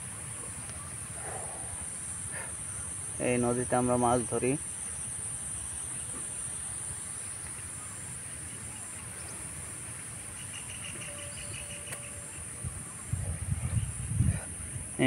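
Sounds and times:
insects chirring: 0.0 - 15.0
wind rumbling on microphone: 10.9 - 15.0.

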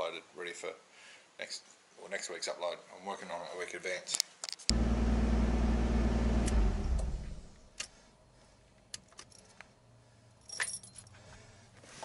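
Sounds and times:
car engine shutting off: 4.7 - 7.7
keys jangling: 9.1 - 9.6, 10.4 - 11.2.

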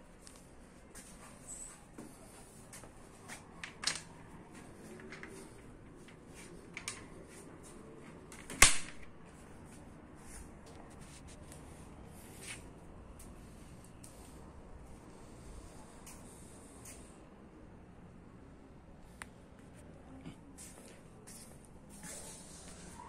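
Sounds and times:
sharp loud snap: 8.5 - 9.1.

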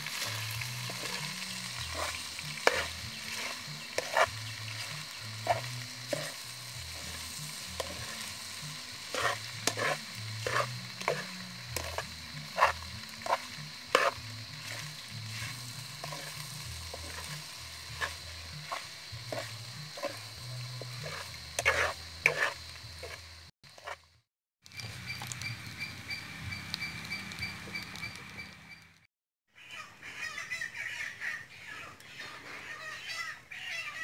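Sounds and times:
metal spatula scraping a pan: 0.0 - 24.0
macaroni sizzling in a pan: 0.0 - 25.8.

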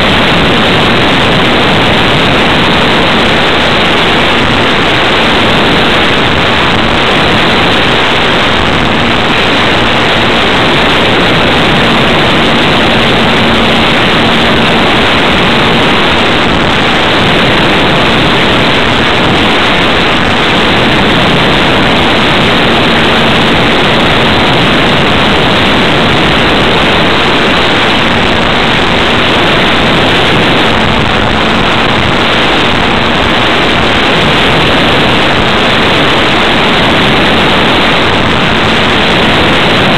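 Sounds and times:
electric motor and propeller hum: 0.0 - 39.9
wind rushing over microphone: 0.0 - 39.9.

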